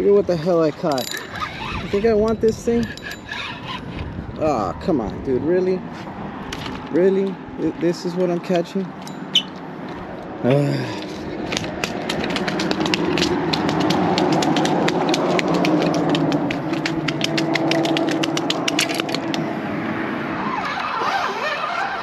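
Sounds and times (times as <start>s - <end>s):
vehicle engine passing: 5.2s - 22.0s
rapid clicking rattle: 11.5s - 19.4s.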